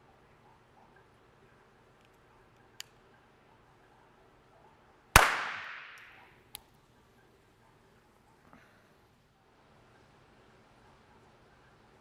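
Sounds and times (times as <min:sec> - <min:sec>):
pistol shot with echo: 0:05.2 - 0:06.2.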